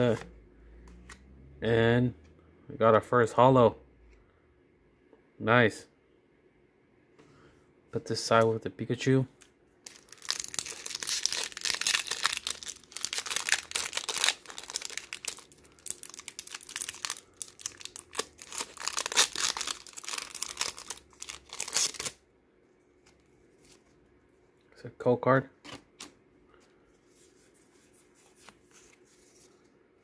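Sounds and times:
foil wrapper crinkling and tearing: 0:09.9 - 0:22.2.

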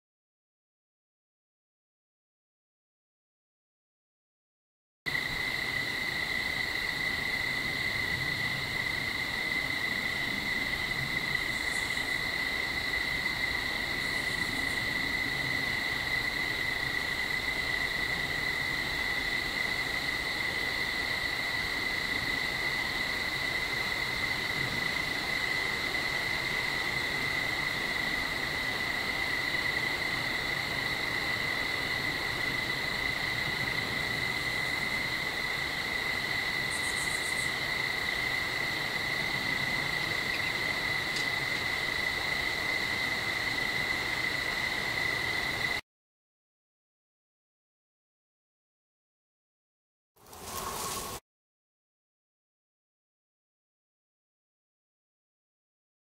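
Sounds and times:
insects trilling: 0:05.1 - 0:45.8, 0:50.2 - 0:51.2.

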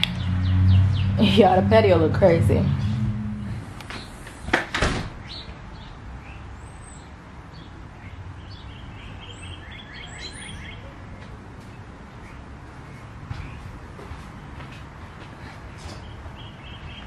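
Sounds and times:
noisy bumps: 0:00.7 - 0:05.4
small birds chirping: 0:05.2 - 0:13.8, 0:15.6 - 0:17.0.

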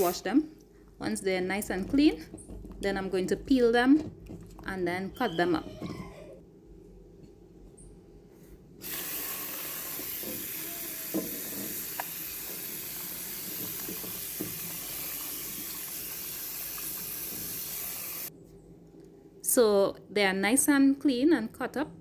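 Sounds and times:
tap water running into sink: 0:08.8 - 0:18.3.

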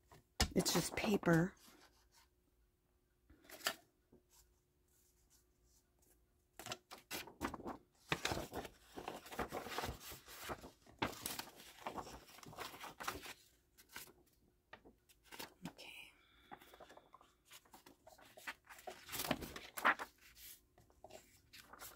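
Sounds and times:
paper rustling and scraping: 0:06.6 - 0:14.2, 0:16.6 - 0:21.9.

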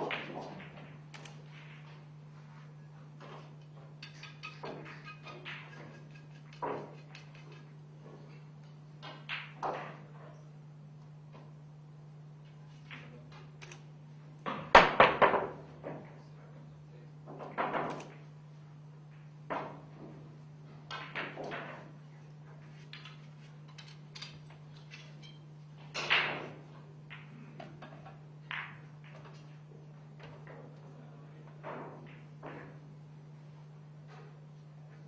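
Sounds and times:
pool balls clacking: 0:00.0 - 0:10.3, 0:19.4 - 0:30.8.

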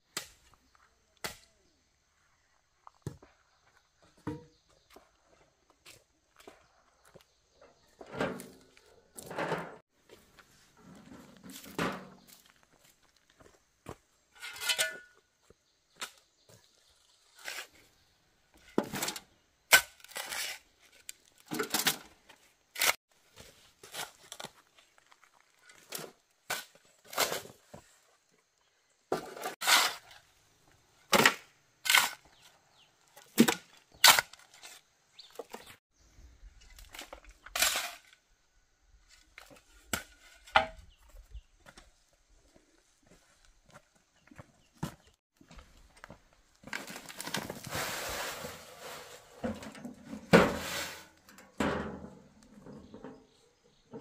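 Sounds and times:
dull scrapes: 0:47.4 - 0:49.4
short scrapes: 0:47.4 - 0:49.5, 0:50.3 - 0:51.2.

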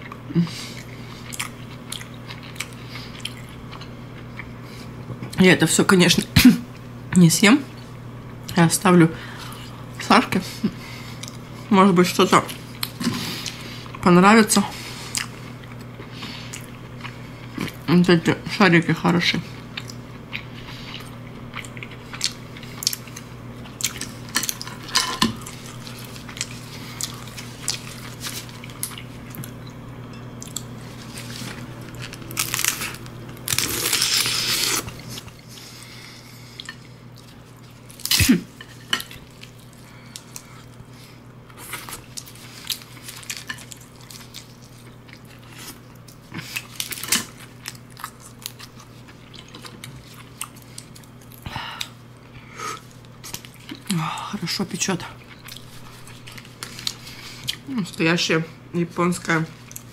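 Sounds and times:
close chewing and biting: 0:19.7 - 0:29.6.

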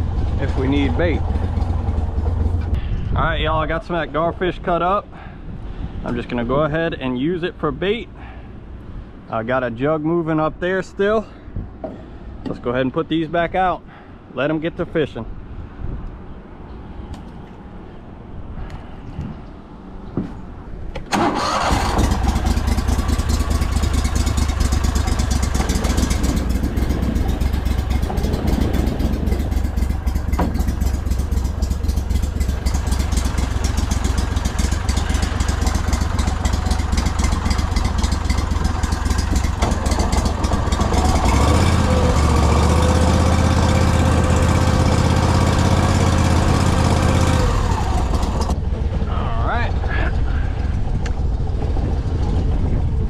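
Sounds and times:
boat engine starting and running: 0:00.0 - 0:03.2, 0:21.0 - 0:53.0.

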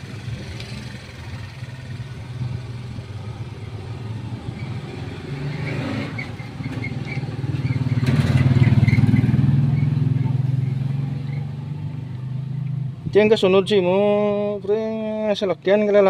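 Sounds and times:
diesel engine running: 0:00.0 - 0:05.4.

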